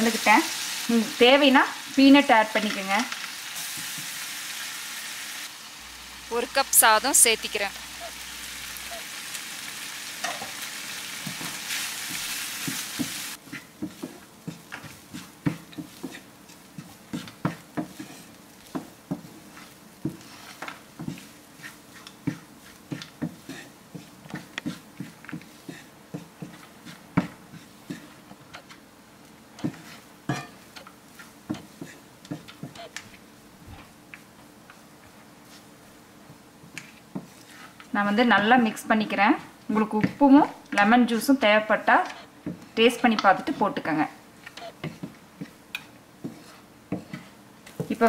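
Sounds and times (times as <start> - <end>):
rice sizzling in hot pan: 0.0 - 48.0
wooden spatula scraping frying pan: 10.1 - 28.8, 29.4 - 34.0, 35.4 - 48.0.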